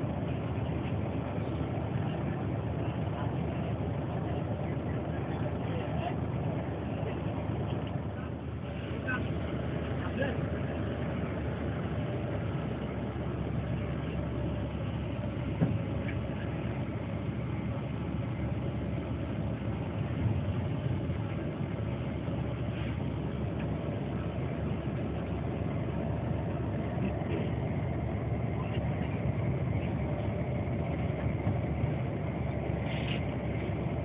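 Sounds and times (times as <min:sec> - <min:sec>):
bus engine and road noise: 0:00.0 - 0:34.0.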